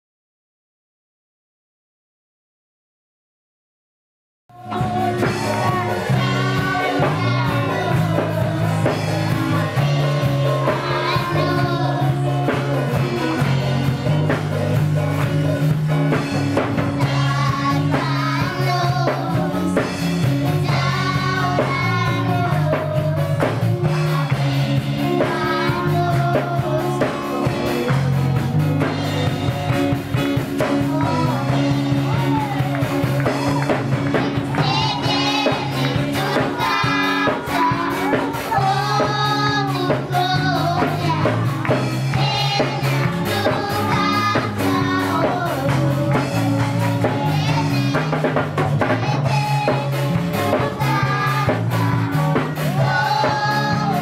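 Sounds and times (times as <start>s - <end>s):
girls singing into microphones: 4.6s - 14.3s, 16.8s - 29.7s, 34.0s - 54.0s
amplified instrumental accompaniment: 4.6s - 54.0s.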